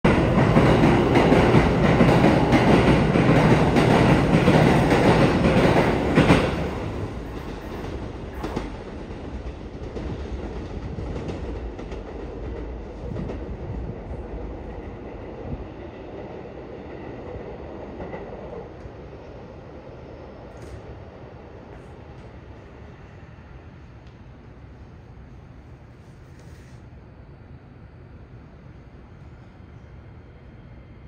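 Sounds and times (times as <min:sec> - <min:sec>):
train clicks: 0:00.1 - 0:14.5, 0:20.5 - 0:20.9.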